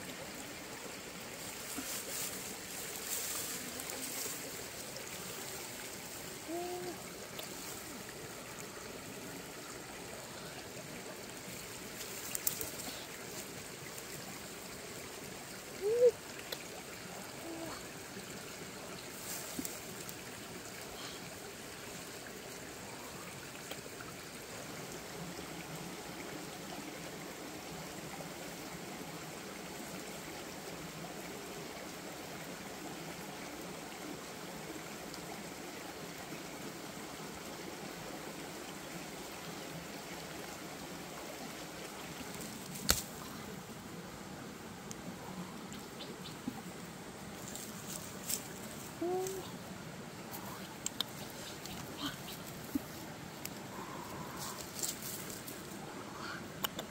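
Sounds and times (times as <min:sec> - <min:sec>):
steady rushing hiss: 0:00.0 - 0:56.9.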